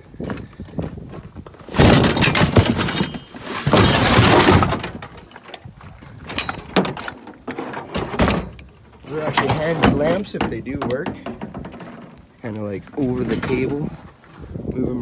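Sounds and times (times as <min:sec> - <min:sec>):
scrap clattering into truck bed: 0:01.6 - 0:12.3.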